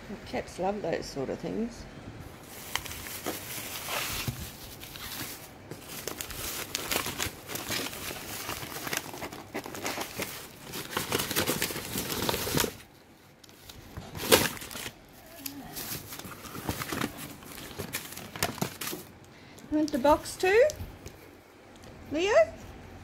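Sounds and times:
packing strips crinkling: 2.4 - 21.2.

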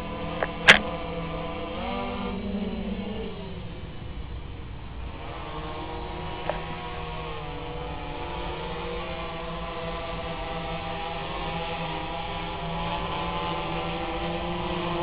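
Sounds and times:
drone propellers whining: 0.0 - 15.0
sharp click: 0.4 - 0.9.

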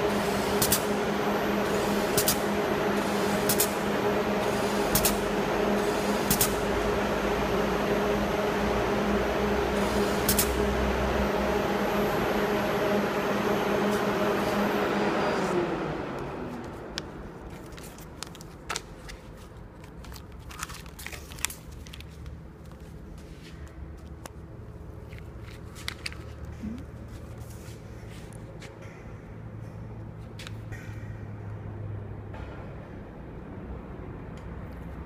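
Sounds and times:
labeling machine humming: 0.0 - 17.9.

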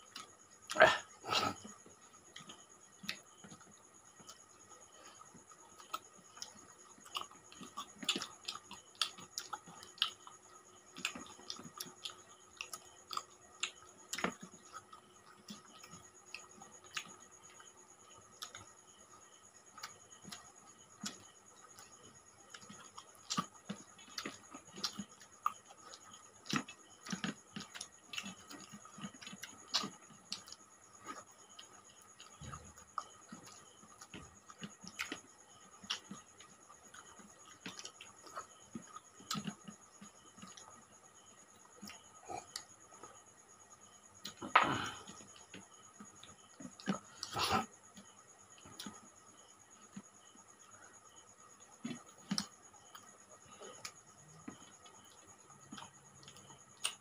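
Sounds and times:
chewing and lip smacks: 5.0 - 17.7, 19.8 - 43.1, 51.6 - 57.0.

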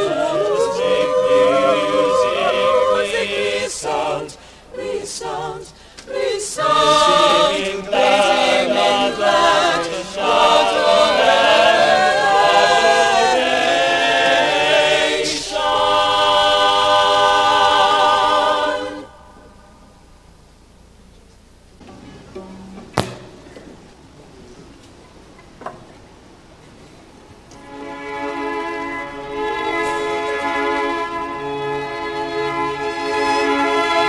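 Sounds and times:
mixed choir singing a cappella: 0.0 - 19.9, 27.6 - 34.0.

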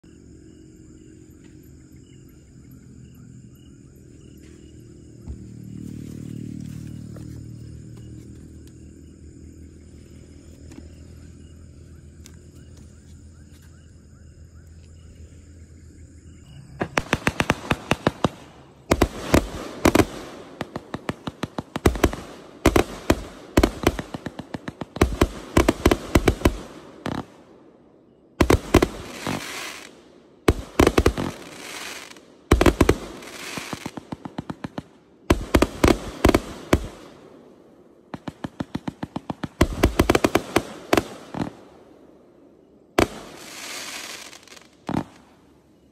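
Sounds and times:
fireworks firing rapid shots: 16.8 - 27.5, 28.4 - 37.3, 38.1 - 41.9, 43.0 - 45.3.

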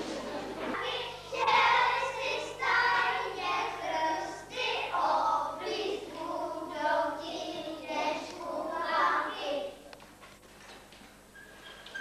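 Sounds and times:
children singing: 0.2 - 9.8.

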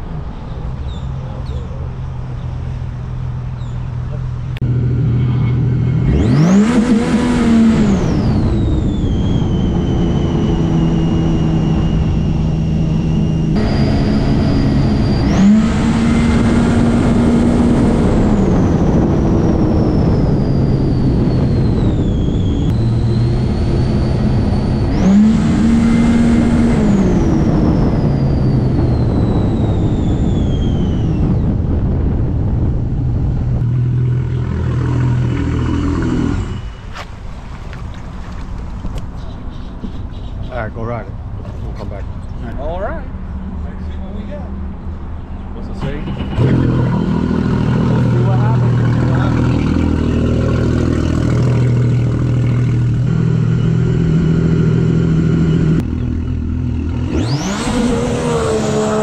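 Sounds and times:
supercharger whine: 1.9 - 39.2, 39.8 - 59.0
jet ski engine revving: 4.6 - 31.4, 33.5 - 37.1, 45.7 - 59.0.

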